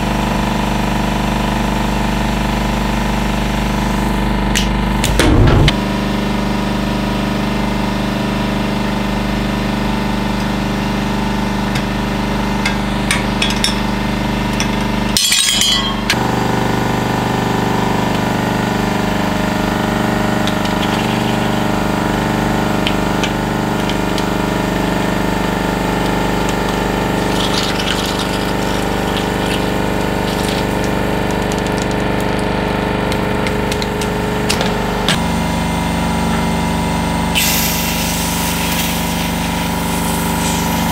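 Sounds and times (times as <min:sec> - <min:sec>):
hydraulic press humming: 0:03.8 - 0:06.1, 0:09.8 - 0:40.9
objects cracking and crunching: 0:26.3 - 0:35.2.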